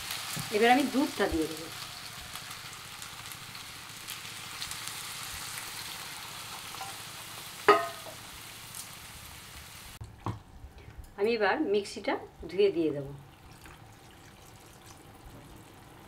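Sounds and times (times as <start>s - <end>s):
pasta sizzling in a pan: 0.0s - 10.0s, 13.2s - 16.0s
milk pouring: 13.3s - 15.8s.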